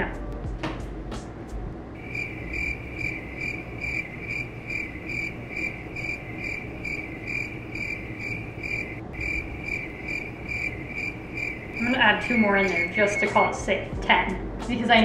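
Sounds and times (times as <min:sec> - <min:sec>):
cricket chirping: 0:02.0 - 0:13.6.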